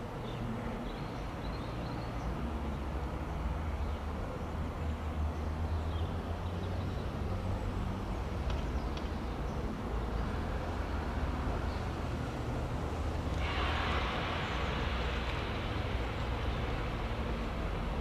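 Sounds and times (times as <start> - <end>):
train diesel engine drone: 9.7 - 18.0.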